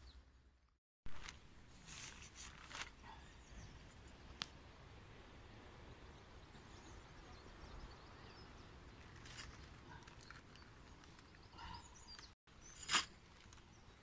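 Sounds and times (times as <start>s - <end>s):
brief rustle: 1.1s - 3.2s
faint bird chirps: 9.4s - 12.9s.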